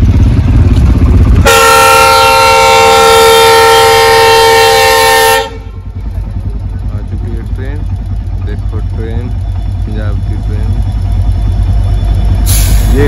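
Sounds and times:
low rumble: 0:00.0 - 0:13.0
locomotive air horn blast: 0:01.4 - 0:05.9.

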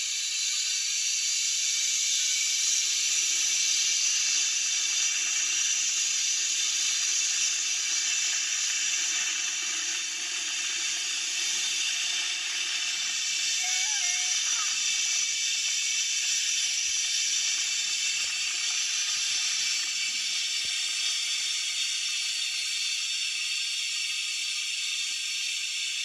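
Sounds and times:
zip line trolley on cable: 0:13.5 - 0:14.9.

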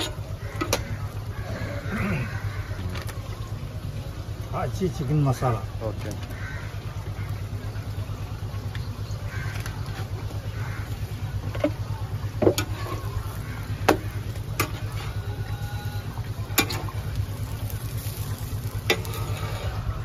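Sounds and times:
steady low hum: 0:00.0 - 0:20.0
metal spatula scraping griddle: 0:12.4 - 0:15.6, 0:17.6 - 0:20.0.

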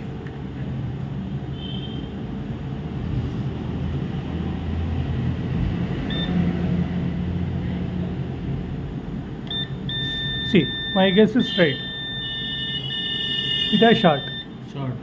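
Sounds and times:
multimeter continuity beep: 0:06.1 - 0:06.4, 0:09.5 - 0:14.6.

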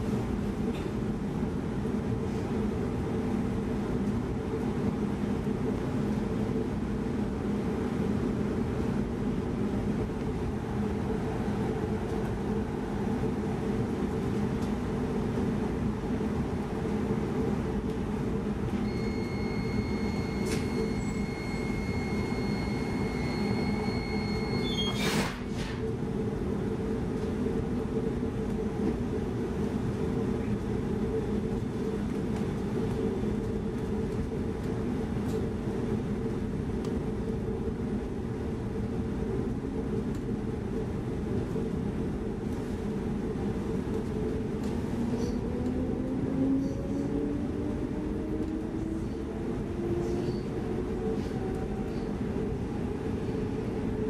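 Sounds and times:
train carriage rolling noise: 0:00.0 - 0:54.0
steady high tone: 0:18.8 - 0:25.0.

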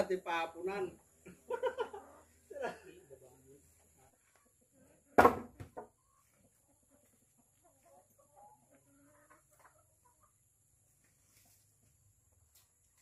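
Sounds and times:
chickens clucking: 0:00.9 - 0:13.0
sharp knocks: 0:05.2 - 0:05.8.

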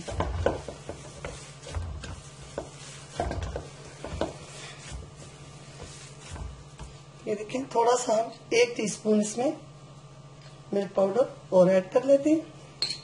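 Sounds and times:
dough thumping in steel bowl: 0:00.0 - 0:07.2.

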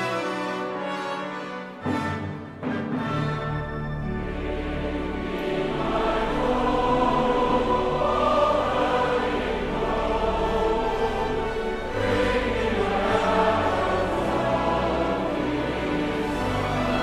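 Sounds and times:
orchestral music: 0:00.0 - 0:17.0
choir singing held chords: 0:02.9 - 0:17.0.

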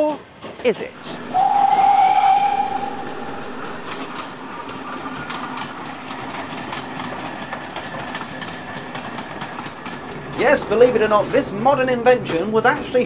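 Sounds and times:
train rumbling along track: 0:00.2 - 0:13.0
steam train whistle: 0:01.0 - 0:06.8
wheels clacking over rail joints: 0:03.9 - 0:13.0.

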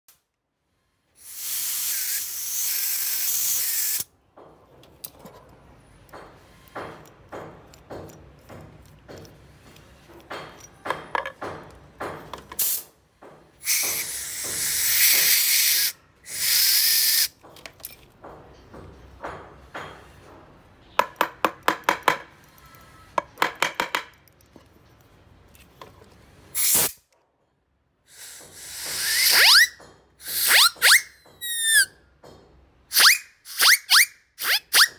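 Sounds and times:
compressed air hissing: 0:01.1 - 0:04.1, 0:12.6 - 0:13.0, 0:13.6 - 0:17.3, 0:26.5 - 0:27.0, 0:28.1 - 0:29.6.

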